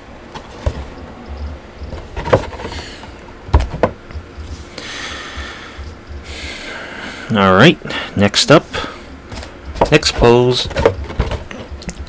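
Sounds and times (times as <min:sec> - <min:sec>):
sharp knocks and clicks: 0:03.5 - 0:04.3, 0:09.3 - 0:12.0.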